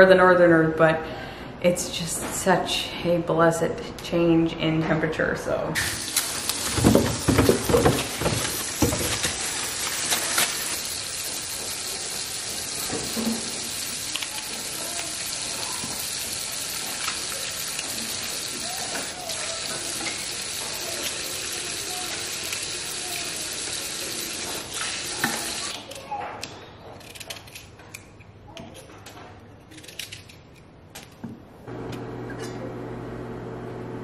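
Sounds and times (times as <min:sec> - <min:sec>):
plastic bag rustling: 0:06.0 - 0:11.1.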